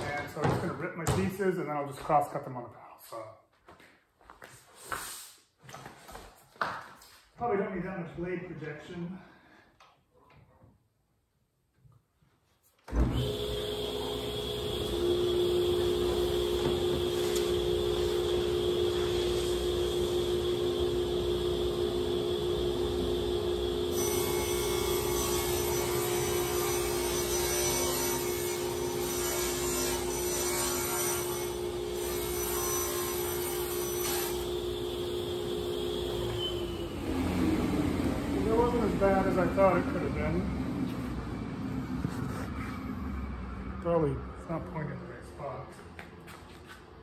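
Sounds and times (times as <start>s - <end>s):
table saw motor running: 13.0s - 40.7s.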